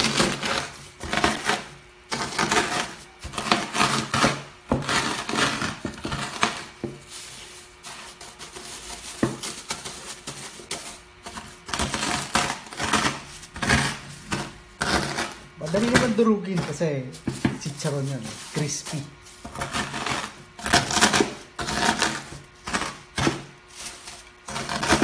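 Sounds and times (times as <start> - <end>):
crunching of crushed rinds: 0.0 - 25.0
plastic bag crinkling: 15.6 - 20.4.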